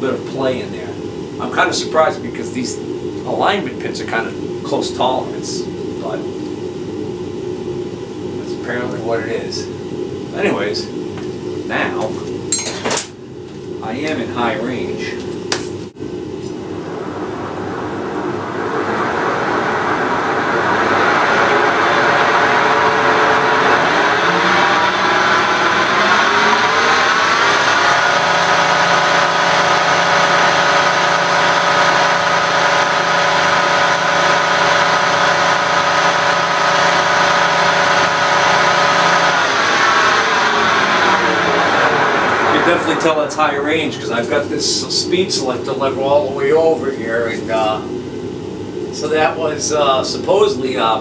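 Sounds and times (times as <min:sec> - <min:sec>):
milling machine spindle whine: 0:16.1 - 0:51.0.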